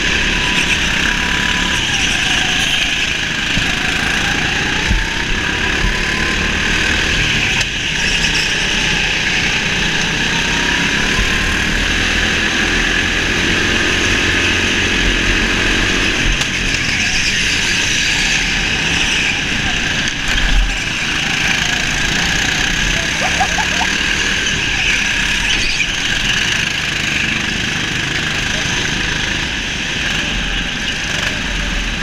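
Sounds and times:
go-kart motor: 0.0 - 32.0.

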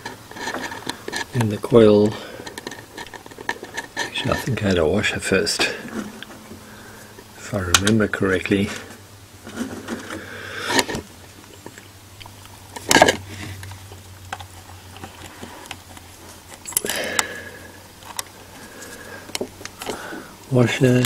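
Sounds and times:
small metal parts clicking and scraping: 0.0 - 4.7, 14.3 - 17.3.

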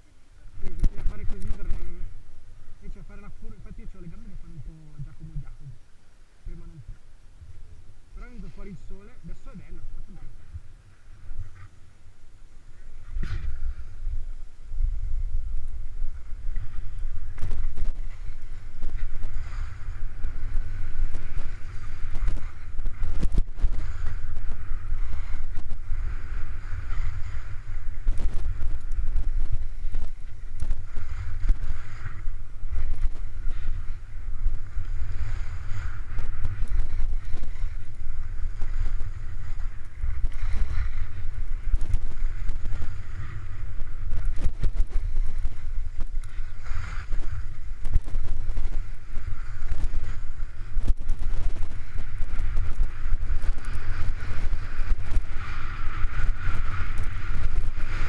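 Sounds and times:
wind buffeting microphone: 0.0 - 58.0
skis hissing on snow: 45.0 - 47.8.

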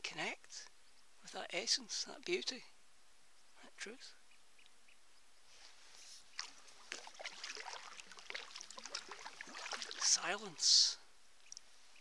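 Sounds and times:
paddle splashing and dripping: 6.3 - 10.7.

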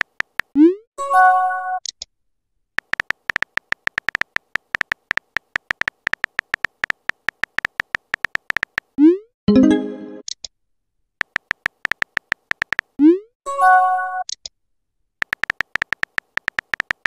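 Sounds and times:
keyboard typing clicks: 0.0 - 0.6, 2.8 - 9.0, 11.2 - 13.0, 15.2 - 17.0
chiming message tone: 9.5 - 10.2.

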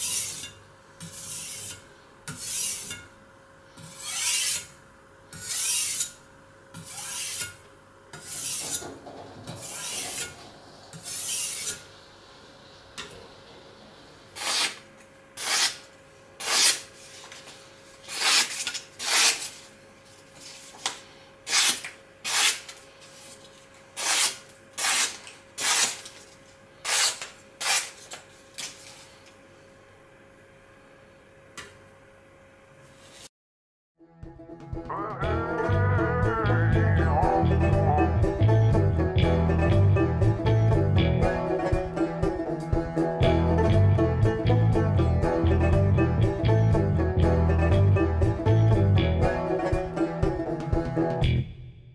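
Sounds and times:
blade scraping on whetstone: 0.0 - 3.0, 3.8 - 4.7, 5.3 - 6.2, 6.8 - 7.6, 8.2 - 8.9, 9.5 - 10.4, 11.0 - 11.8, 15.4 - 15.8, 16.4 - 16.8, 18.1 - 19.5, 24.0 - 26.0, 26.8 - 28.0
blade slicing paper: 3.9 - 4.7, 5.4 - 6.2, 6.8 - 7.6, 14.4 - 14.8, 15.4 - 19.7, 21.4 - 28.9.

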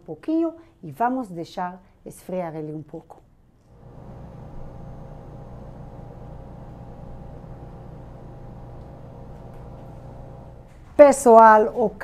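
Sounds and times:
oven fan humming: 3.8 - 10.9.

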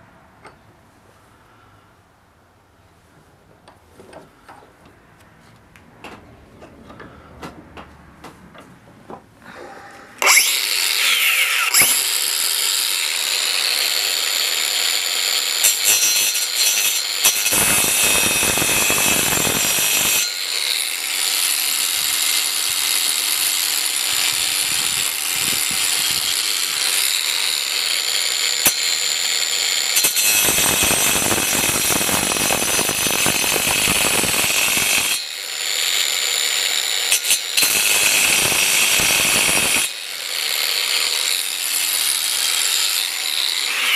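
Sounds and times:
angle grinder cutting metal: 10.2 - 43.9.

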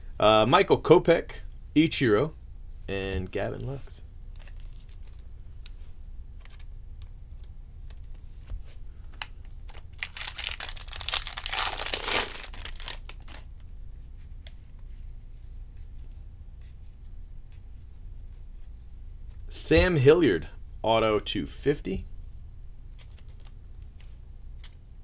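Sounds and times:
foil wrapper tearing and crinkling: 9.7 - 13.4.

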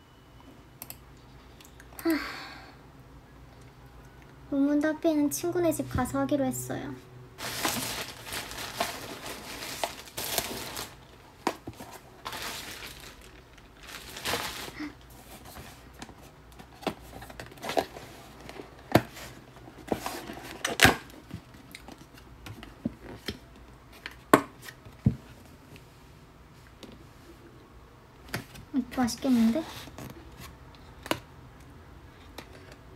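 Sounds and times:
plastic packaging crinkling: 7.4 - 15.9.

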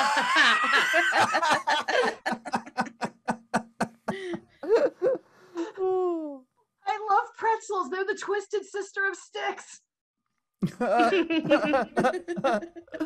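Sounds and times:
people laughing: 0.0 - 5.2, 10.6 - 13.0.

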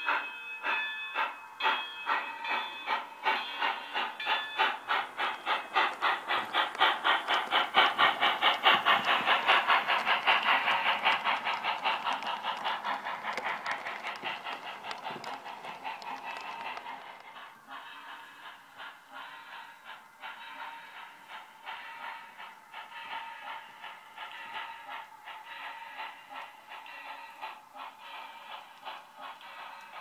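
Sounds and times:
model steam locomotive chuffing: 0.0 - 30.0.

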